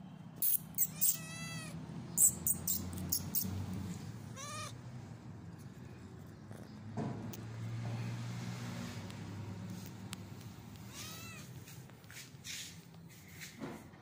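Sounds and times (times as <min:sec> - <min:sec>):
cat meowing: 0:00.7 - 0:01.8, 0:04.3 - 0:04.8, 0:10.8 - 0:11.6.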